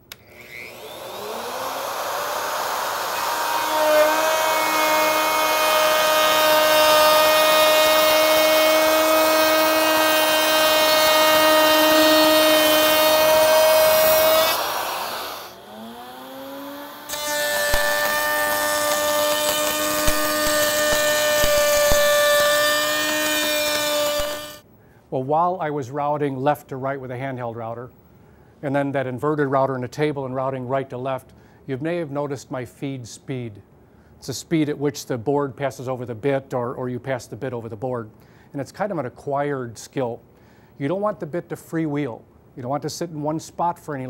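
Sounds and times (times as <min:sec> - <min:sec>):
electric router whining: 0:00.0 - 0:24.6
table router running: 0:00.1 - 0:24.6.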